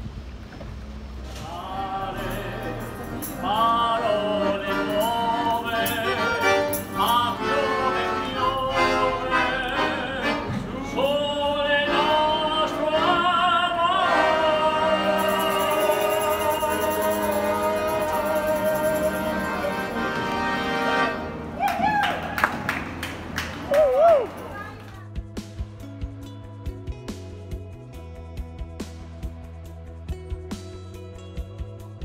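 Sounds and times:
instrumental accompaniment: 1.1s - 21.6s
man singing with vibrato: 1.3s - 21.2s.

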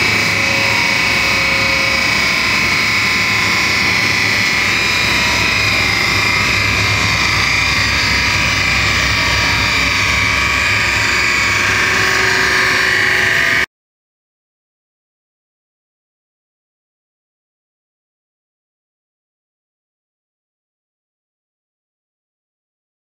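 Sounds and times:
supercharged engine whine and rumble: 0.0s - 13.6s.

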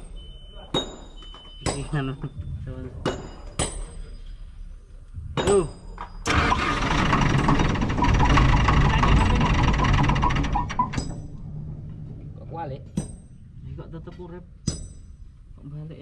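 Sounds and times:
starter cranking diesel engine: 6.3s - 11.0s
diesel engine running: 6.3s - 11.4s.

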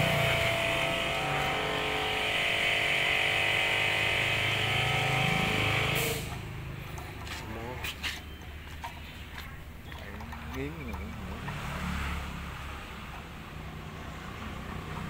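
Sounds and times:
air compressor humming: 0.0s - 11.9s.

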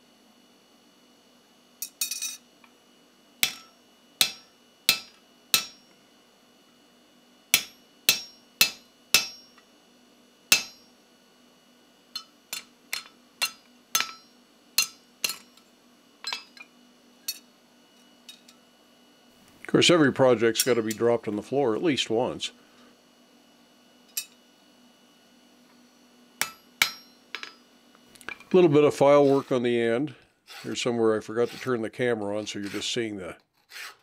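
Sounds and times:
hammer striking steel punch: 3.4s - 5.8s, 7.5s - 9.6s, 10.5s - 10.9s, 12.2s - 15.4s, 26.4s - 27.6s.

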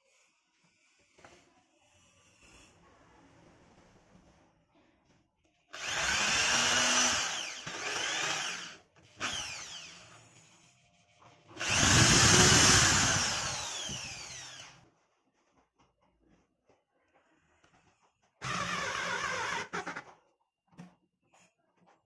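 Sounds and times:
electric drill boring into wood: 5.8s - 10.0s, 11.6s - 14.8s, 18.4s - 20.0s.

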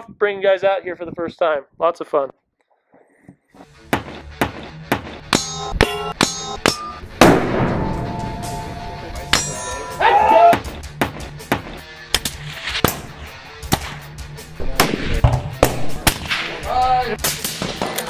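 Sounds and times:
background music: 3.5s - 18.0s
bullets clanging on steel targets: 5.3s - 7.0s, 9.2s - 10.5s
rifle shots: 7.2s - 8.0s.

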